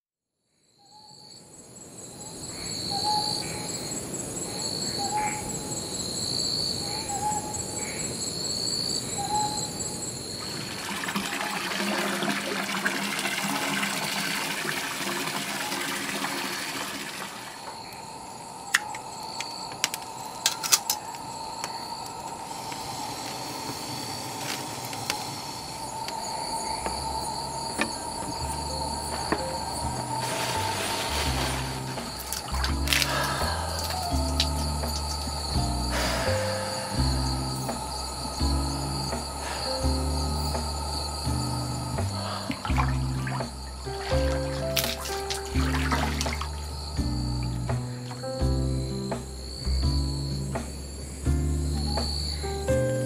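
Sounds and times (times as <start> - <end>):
night insects chirping: 0.4 - 53.0
water rushing and splashing in bath: 10.4 - 17.8, 26.8 - 37.2, 40.6 - 46.8.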